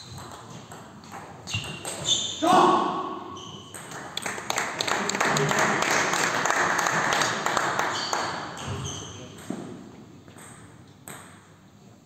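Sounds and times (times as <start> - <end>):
crowd clapping: 3.9 - 8.4.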